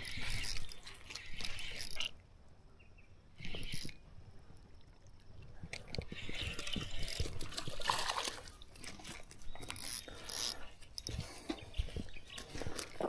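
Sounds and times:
water splashing and dripping: 4.8 - 9.8.

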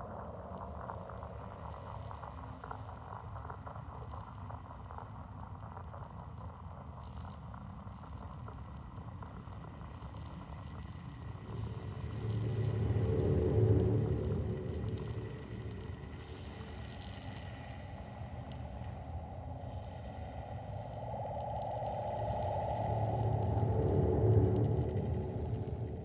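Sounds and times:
low hum: 10.3 - 26.0.

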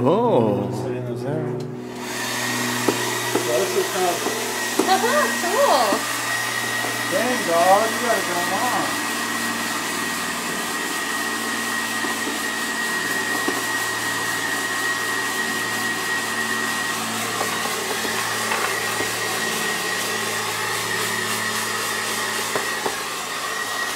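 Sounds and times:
hair dryer running: 1.7 - 23.9.

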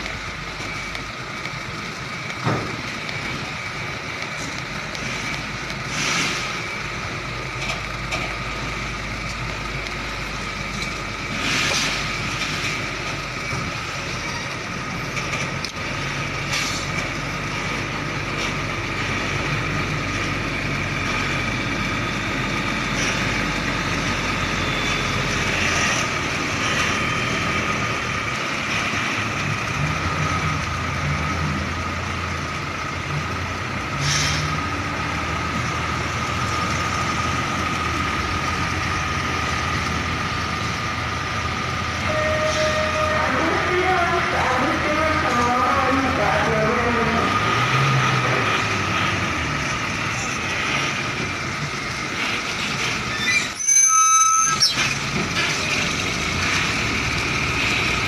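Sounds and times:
diesel truck engine hum: 0.0 - 58.0
short air hisses: 34.0 - 34.5.

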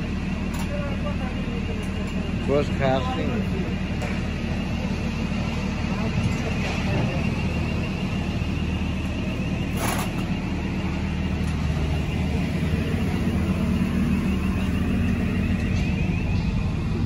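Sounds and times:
construction machinery engine humming: 0.0 - 17.0.

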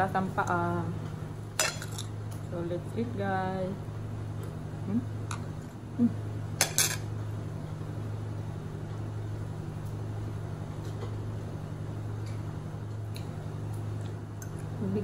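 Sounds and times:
steady low hum: 0.0 - 15.0
cutlery clinking against dishes: 6.6 - 7.0.

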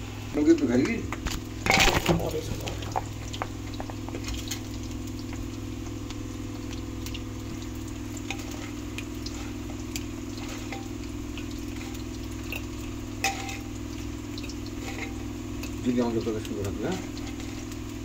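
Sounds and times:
frying oil sizzling: 0.0 - 18.0
oil pops and crackles: 0.4 - 18.0
low hum: 1.4 - 18.0.

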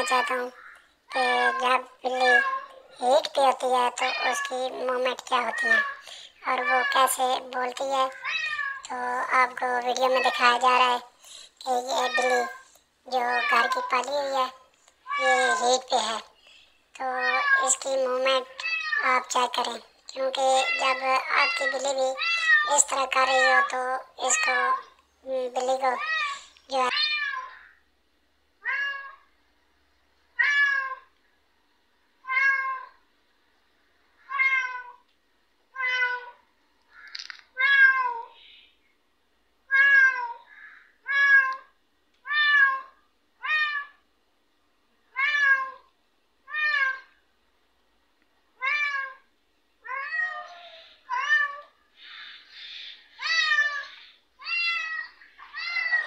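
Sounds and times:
cat meowing loudly: 8.1 - 8.9, 18.5 - 19.2, 20.6 - 23.7, 26.0 - 27.8, 28.6 - 29.3, 30.4 - 31.1, 32.2 - 33.0, 34.2 - 35.0, 35.7 - 38.4, 39.7 - 44.0, 45.1 - 45.9, 46.5 - 47.2, 48.6 - 51.8, 53.2 - 56.0.

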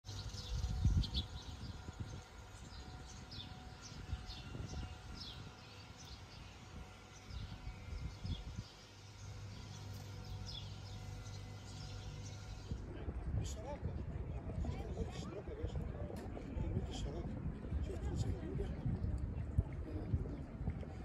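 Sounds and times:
small birds chirping: 0.1 - 12.8.

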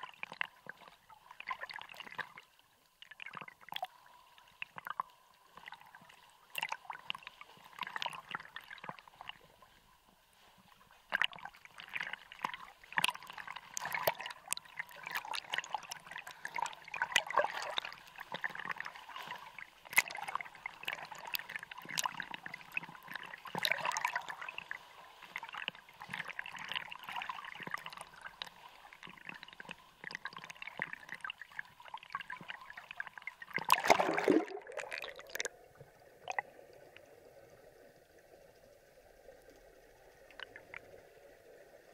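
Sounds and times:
water sloshing and splashing: 0.0 - 36.5
underwater gurgling rush: 11.1 - 36.7.

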